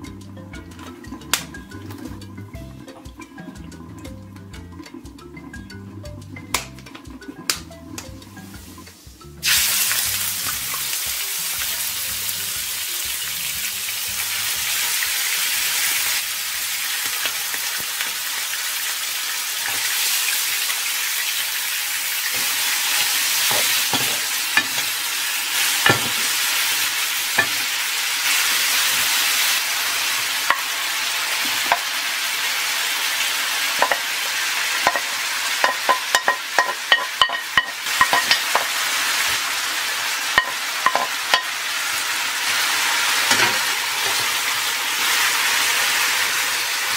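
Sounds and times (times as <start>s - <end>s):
meat sizzling in oil: 8.3s - 46.9s
wooden spatula clicking on pan: 34.8s - 38.7s.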